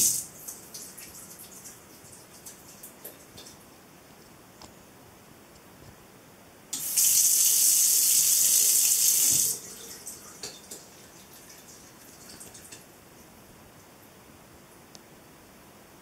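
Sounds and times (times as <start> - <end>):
water hissing into sink: 6.8 - 10.4
faucet valve noise: 6.8 - 10.9.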